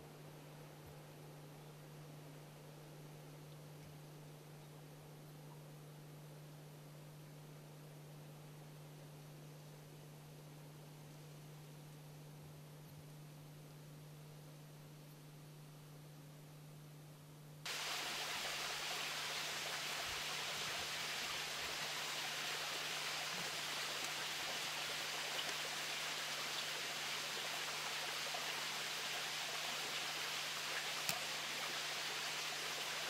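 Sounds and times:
faint low hum: 0:00.0 - 0:33.0
steady hiss: 0:17.6 - 0:33.0
faint click: 0:31.0 - 0:31.3.

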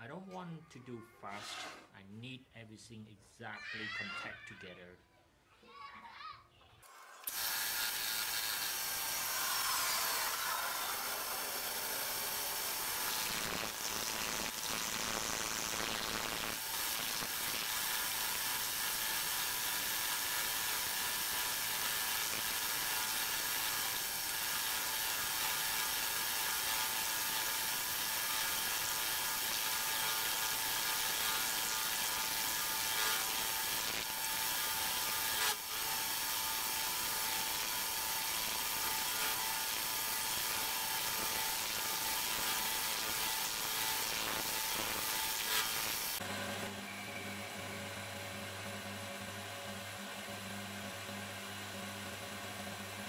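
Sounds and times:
machine whine: 0:07.2 - 0:18.0
end mill cutting steel: 0:07.2 - 0:46.2.

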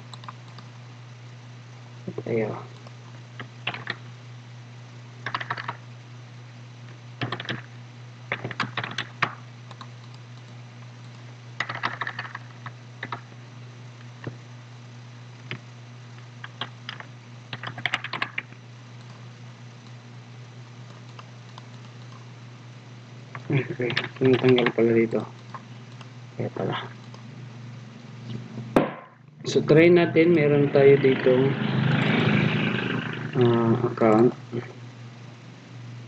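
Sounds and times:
computer keyboard typing: 0:00.0 - 0:00.7, 0:02.8 - 0:04.0, 0:05.2 - 0:05.8, 0:07.2 - 0:07.7, 0:08.3 - 0:13.3, 0:16.4 - 0:19.2, 0:20.8 - 0:22.2, 0:23.8 - 0:26.1
steady low hum: 0:00.0 - 0:36.0.

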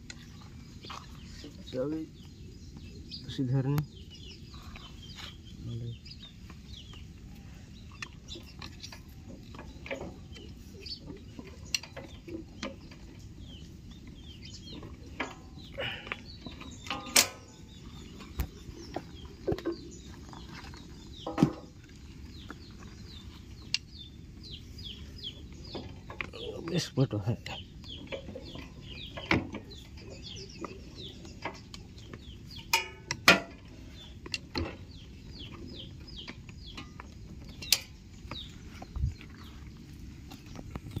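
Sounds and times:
birds chirping: 0:00.0 - 0:41.0
chickens clucking: 0:06.4 - 0:41.0
clicks and knocks of belt on pulley: 0:16.4 - 0:17.4.

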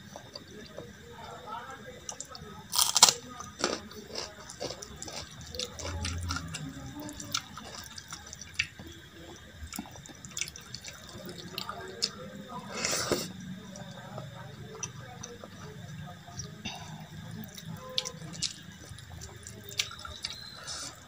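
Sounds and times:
crunch of biting chilli: 0:02.7 - 0:08.9, 0:17.5 - 0:21.0
chewing and lip smacks: 0:03.6 - 0:12.2, 0:17.4 - 0:20.7.

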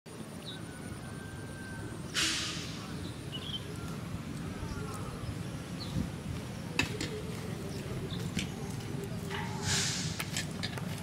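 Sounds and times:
faint bird chirps: 0:00.3 - 0:06.0
short hiss: 0:02.1 - 0:02.9, 0:09.6 - 0:10.3.

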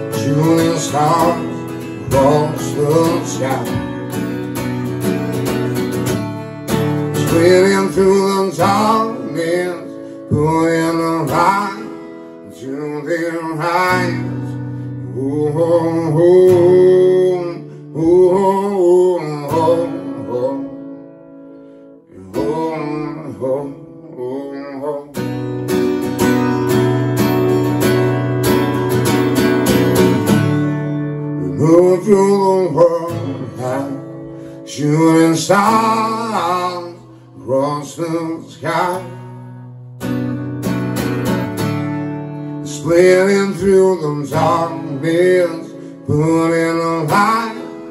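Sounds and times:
man singing: 0:00.0 - 0:04.4, 0:07.0 - 0:21.0, 0:22.1 - 0:25.4, 0:31.3 - 0:39.5, 0:42.6 - 0:47.9
acoustic guitar strumming: 0:00.0 - 0:47.9.

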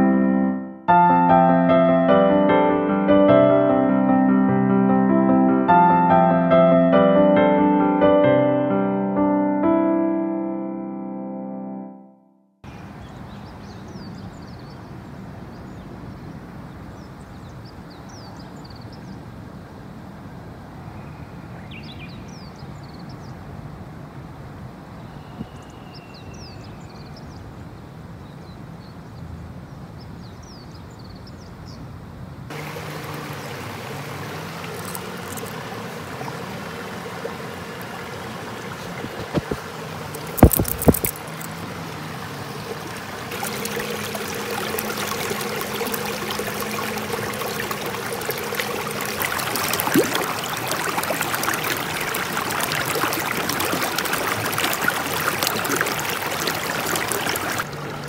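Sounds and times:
creek water rushing and splashing: 0:32.5 - 0:58.0.

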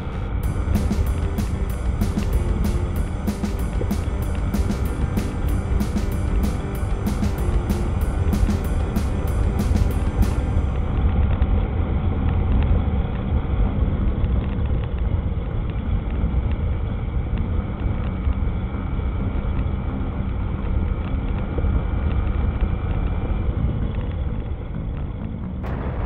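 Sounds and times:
motorcycle engine and road rumble: 0:00.0 - 0:26.0
wind buffeting microphone: 0:25.6 - 0:26.0.

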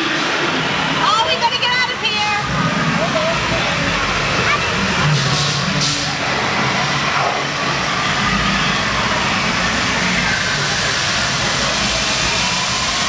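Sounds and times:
steam and flame effects rushing: 0:04.9 - 0:13.0.

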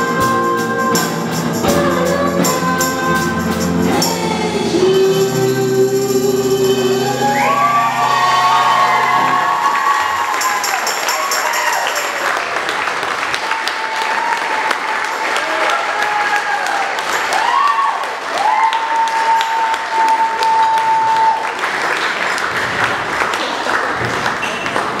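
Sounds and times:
high held tone: 0:01.8 - 0:11.3
audience applauding: 0:07.0 - 0:25.0.

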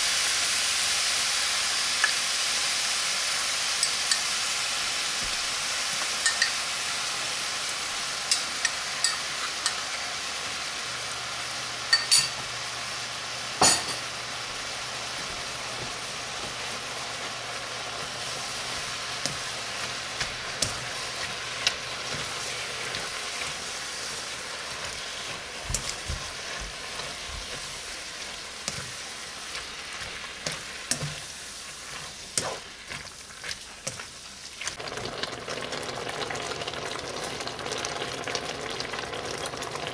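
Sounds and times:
meat sizzling in hot oil: 0:00.0 - 0:39.9
spatula scraping and knocking pan: 0:15.2 - 0:34.1.

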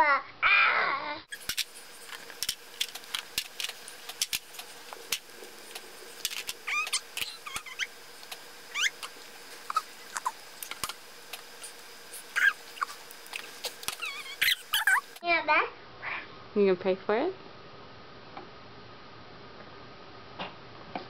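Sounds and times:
baby squealing: 0:06.6 - 0:07.9, 0:08.7 - 0:09.1, 0:09.7 - 0:10.4, 0:12.3 - 0:13.0, 0:14.0 - 0:15.1.

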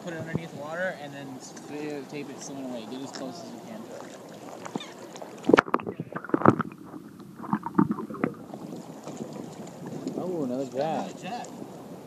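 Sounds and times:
water sloshing and splashing: 0:00.0 - 0:12.0
underwater knocks and gurgles: 0:03.9 - 0:11.8.

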